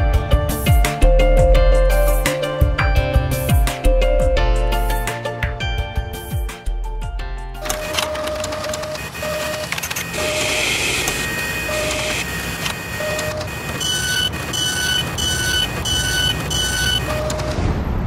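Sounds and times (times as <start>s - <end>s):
machine rumble and whir: 7.6s - 18.0s
short electronic beeps: 9.1s - 17.6s.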